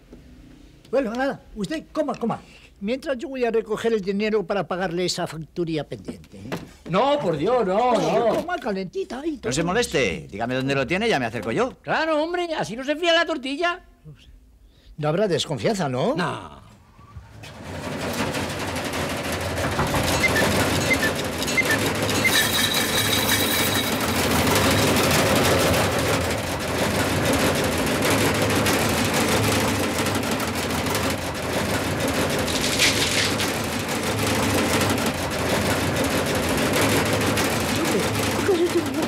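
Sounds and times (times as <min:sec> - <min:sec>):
machine clattering rumble: 0:17.2 - 0:39.0.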